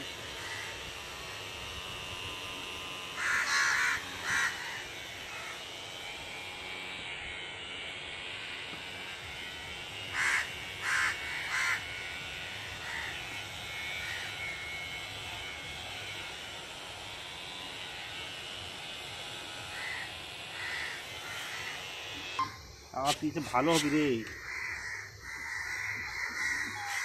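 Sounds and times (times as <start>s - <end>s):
crow cawing: 0.4s - 0.7s, 3.2s - 5.6s, 10.1s - 12.0s, 12.8s - 13.2s, 14.0s - 14.4s, 19.7s - 21.9s, 23.4s - 27.0s
steady background hiss: 19.4s - 27.0s.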